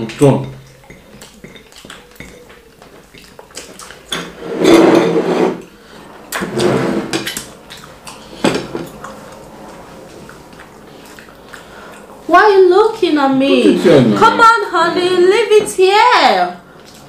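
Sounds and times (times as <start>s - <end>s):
dishes and utensils clinking: 0.0s - 9.3s.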